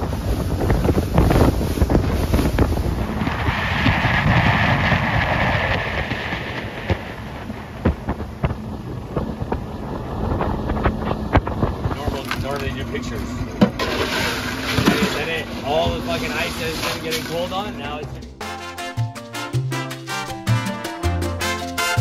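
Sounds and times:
wind buffeting microphone: 0.0s - 16.8s
boat engine rumble: 0.0s - 22.0s
water rushing along hull: 0.0s - 22.0s.

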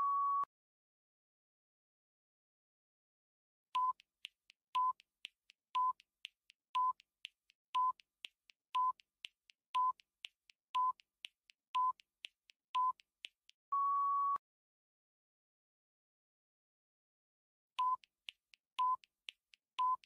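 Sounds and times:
faint ticks: 3.8s - 13.6s, 17.8s - 20.0s.

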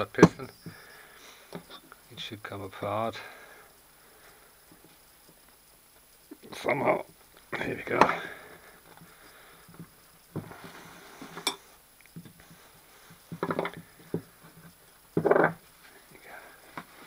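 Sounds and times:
handling noise: 7.1s - 16.0s.

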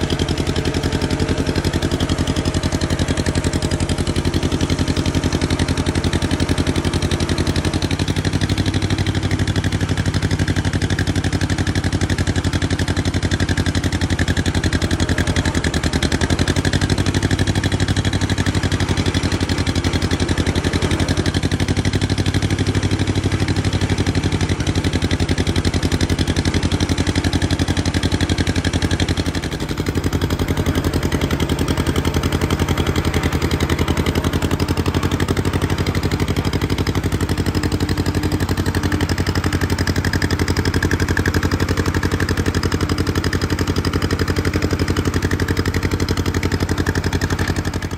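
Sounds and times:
tractor engine running: 0.0s - 47.9s.

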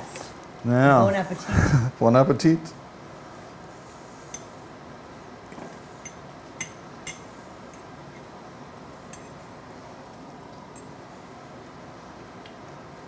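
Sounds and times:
room hiss: 0.0s - 13.0s
forks clinking against plates: 9.1s - 9.4s.

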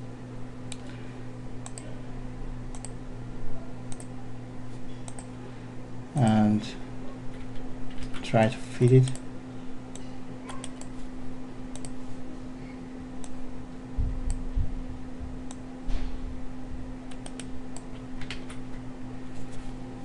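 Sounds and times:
steady low hum: 0.0s - 20.0s
computer mouse clicks: 2.7s - 3.0s, 3.9s - 4.1s, 5.0s - 5.3s, 9.9s - 10.9s, 11.7s - 12.0s, 17.1s - 18.5s
keyboard clicks: 2.7s - 3.0s, 3.9s - 4.1s, 5.1s - 5.3s, 11.7s - 12.0s, 17.1s - 18.6s
dull low thumps: 14.0s - 15.4s.

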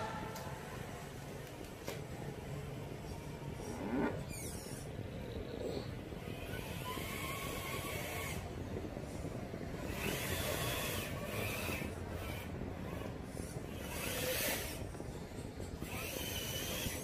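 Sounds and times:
electric motor and gears whining: 3.6s - 14.9s, 15.7s - 17.0s.

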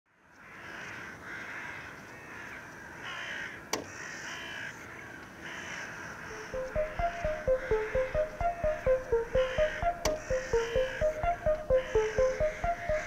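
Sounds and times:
crows cawing: 0.4s - 6.3s
music with bass line and melody: 6.4s - 13.0s.

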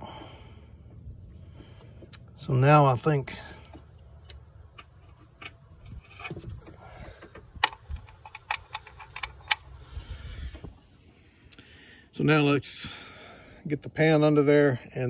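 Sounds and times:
faint handling noise: 0.8s - 11.2s
wrench clicking on bolt: 7.2s - 9.7s.

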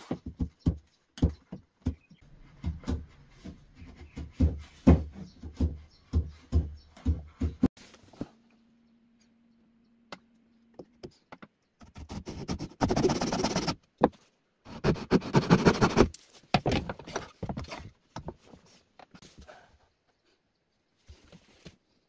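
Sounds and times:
knocks and scrapes of wood: 0.0s - 8.4s, 14.9s - 19.8s.

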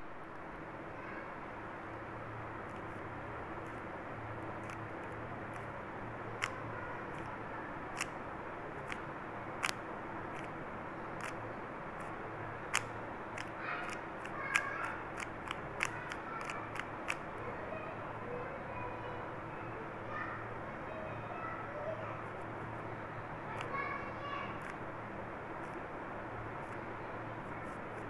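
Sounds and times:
puzzle cube clicks: 4.6s - 5.7s, 8.0s - 8.2s, 8.8s - 9.0s, 9.6s - 10.5s, 11.2s - 11.4s, 12.7s - 17.3s.

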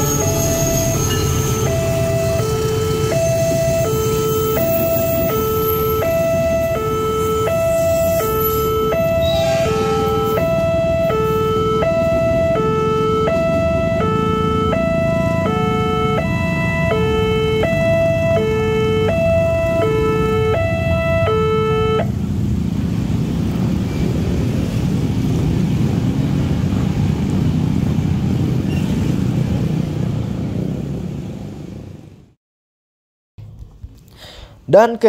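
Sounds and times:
crossing bell two-tone alarm: 0.0s - 22.1s
motorcycles and cars rumbling: 0.0s - 32.3s.

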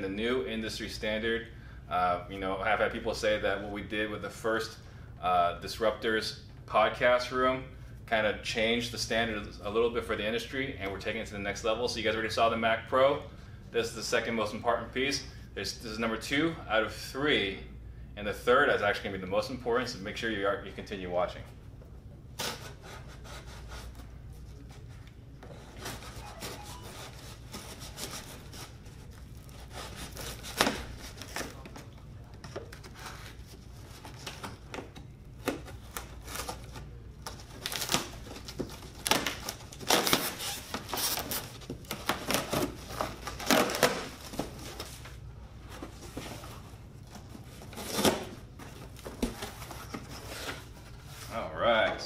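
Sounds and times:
knife cutting tape and cardboard: 29.5s - 31.6s.

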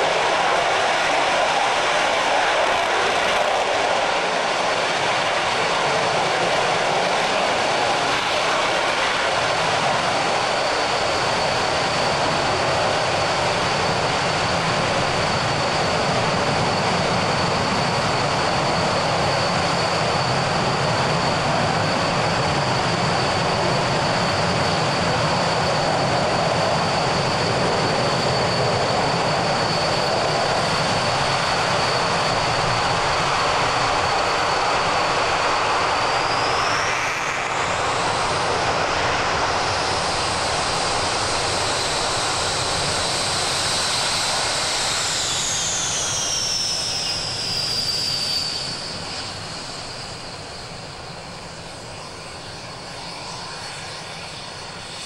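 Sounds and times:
high jet whine: 0.0s - 55.0s
jet engine roar: 0.0s - 55.0s.

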